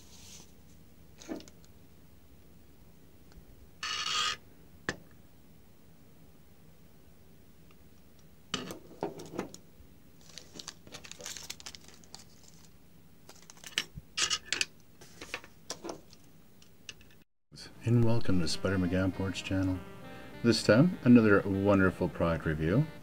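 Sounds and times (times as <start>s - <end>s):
plastic packaging crinkling: 10.2s - 13.8s.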